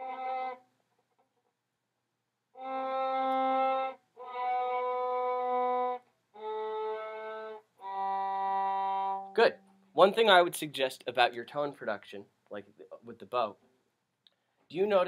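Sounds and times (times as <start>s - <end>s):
bowed viola notes: 0.0s - 0.6s, 2.6s - 10.5s.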